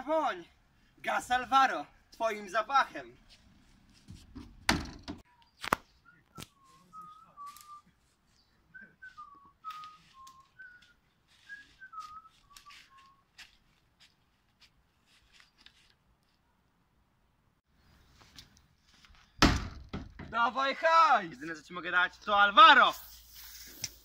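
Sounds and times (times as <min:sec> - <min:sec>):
plastic door banging shut: 0:04.3 - 0:05.2, 0:19.4 - 0:20.4
person whistling a tune: 0:06.0 - 0:07.9, 0:08.7 - 0:13.2
footsteps in dry leaves: 0:09.8 - 0:16.4.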